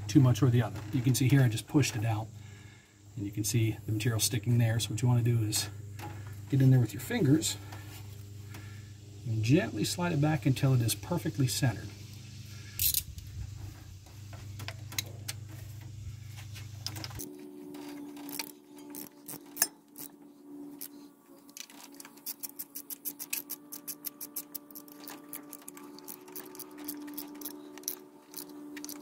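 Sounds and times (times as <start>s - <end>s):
hand ratchet clicking: 18.2s - 20.2s, 20.8s - 29.0s.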